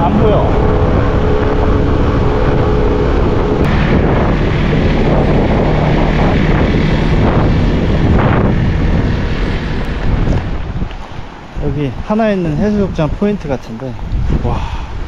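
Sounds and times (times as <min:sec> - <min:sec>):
scooter engine running: 0:00.0 - 0:10.7
wind buffeting microphone: 0:00.0 - 0:15.0.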